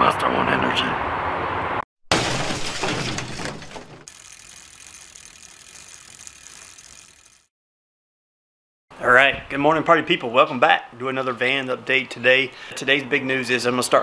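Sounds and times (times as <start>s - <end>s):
rattle of dense clicks: 4.0s - 7.5s.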